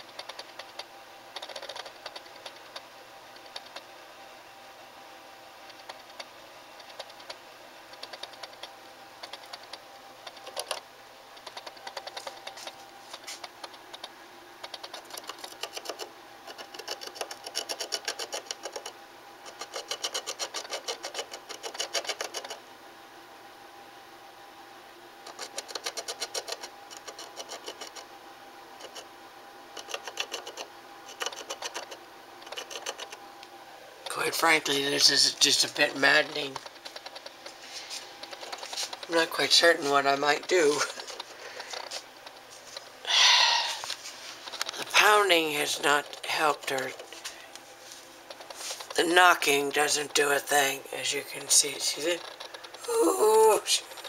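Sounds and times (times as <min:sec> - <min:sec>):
animal scratching inside wall: 0:00.0 - 0:03.8, 0:05.6 - 0:10.8, 0:11.4 - 0:22.6, 0:25.2 - 0:28.1, 0:28.8 - 0:29.1, 0:29.8 - 0:33.2, 0:34.1 - 0:42.8.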